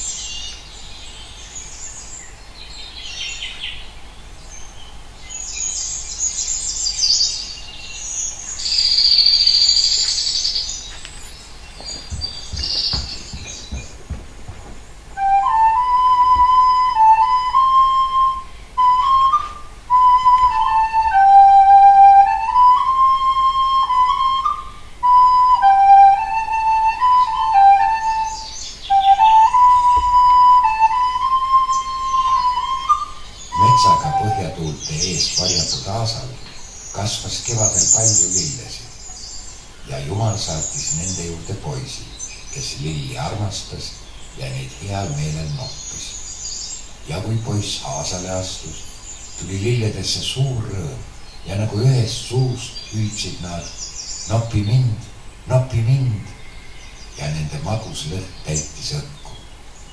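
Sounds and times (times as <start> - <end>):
birds chirping and trilling: 0.0 - 59.9
low thumps: 11.0 - 17.9, 28.9 - 32.7
flute playing slow melody: 15.2 - 36.4.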